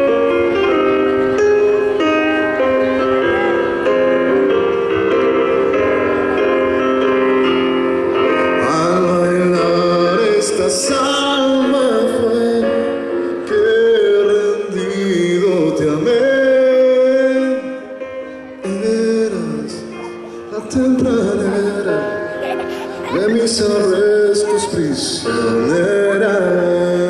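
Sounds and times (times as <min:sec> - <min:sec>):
digital piano chords: 0:00.0 - 0:27.0
man singing: 0:08.4 - 0:27.0.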